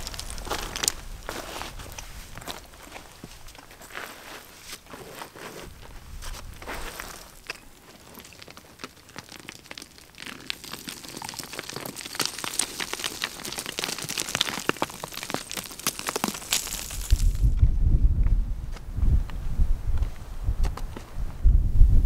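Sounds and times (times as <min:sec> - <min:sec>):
boots crunching on scree: 0:00.0 - 0:17.6.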